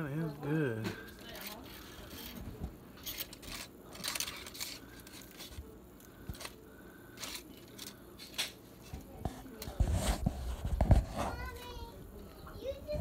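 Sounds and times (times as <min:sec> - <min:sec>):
aluminium foil crinkling: 0:01.0 - 0:09.8
fork scraping on foil: 0:01.0 - 0:11.9.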